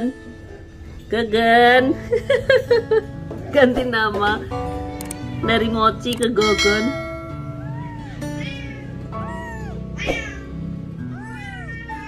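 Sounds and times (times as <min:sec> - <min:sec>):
kitten mewing: 0:07.5 - 0:12.0.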